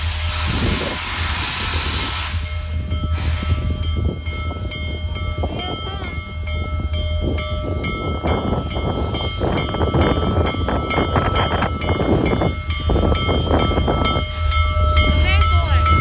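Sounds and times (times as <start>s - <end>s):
steam exhaust bursts: 0.0s - 4.2s
steam locomotive rumble: 0.0s - 16.0s
locomotive bell ringing: 2.2s - 16.0s.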